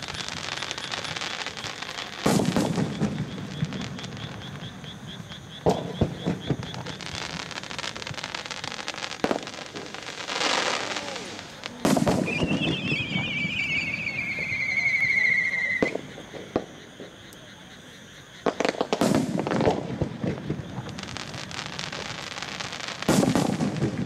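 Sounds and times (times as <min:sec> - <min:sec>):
firework bangs: 0:00.0 - 0:17.2, 0:18.4 - 0:24.0
firework crackling: 0:00.0 - 0:17.2, 0:18.4 - 0:24.0
firework boom: 0:11.0 - 0:14.7
warbling whistle sliding down: 0:12.2 - 0:15.9.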